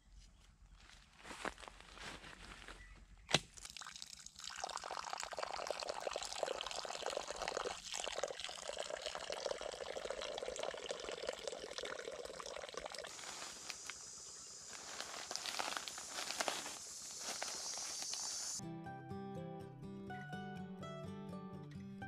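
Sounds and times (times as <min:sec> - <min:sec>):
water pouring into pot: 0:03.6 - 0:13.1.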